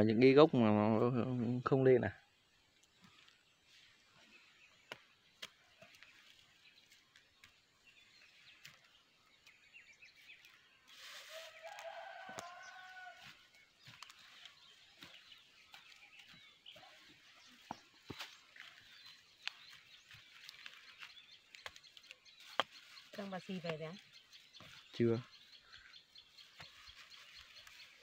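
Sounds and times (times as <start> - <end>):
distant rooster crowing: 11.2 - 13.5.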